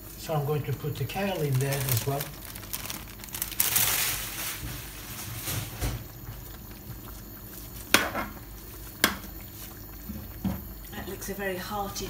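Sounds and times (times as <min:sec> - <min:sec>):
stew simmering: 0:00.0 - 0:12.0
plastic bag rustling: 0:00.5 - 0:06.6.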